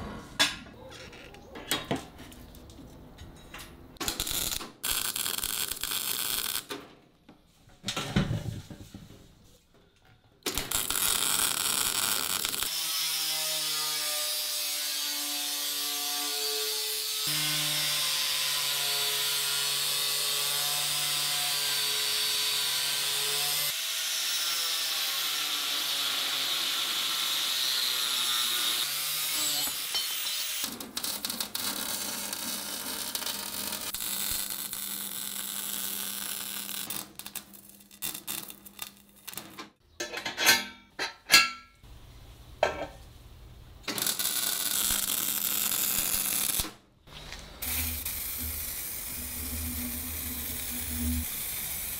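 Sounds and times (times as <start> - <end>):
angle grinder grinding metal: 47.2 - 51.9.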